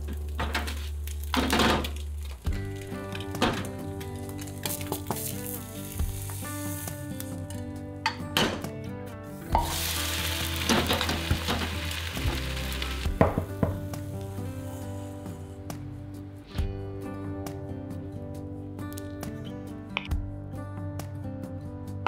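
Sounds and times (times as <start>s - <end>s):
soft background music: 0.0s - 22.0s
pancake sizzling in a pan: 4.4s - 7.4s, 9.6s - 15.4s
pan knocking: 9.5s - 12.5s, 13.1s - 13.9s.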